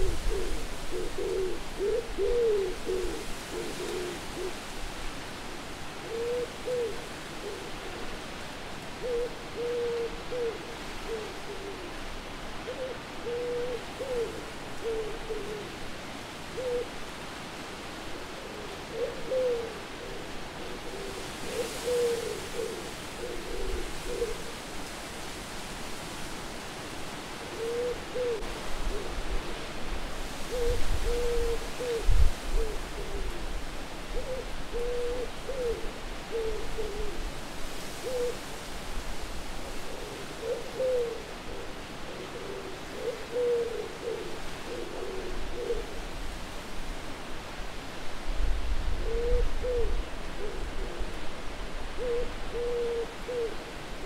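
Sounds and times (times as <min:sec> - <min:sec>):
owl hooting: 0:00.0 - 0:04.6, 0:06.0 - 0:08.0, 0:09.0 - 0:11.9, 0:12.6 - 0:15.7, 0:16.6 - 0:16.9, 0:18.5 - 0:24.5, 0:27.5 - 0:29.2, 0:30.4 - 0:33.4, 0:34.2 - 0:37.2, 0:37.9 - 0:38.4, 0:39.9 - 0:46.0, 0:49.0 - 0:51.1, 0:52.0 - 0:53.6
steady wind: 0:00.0 - 0:54.0.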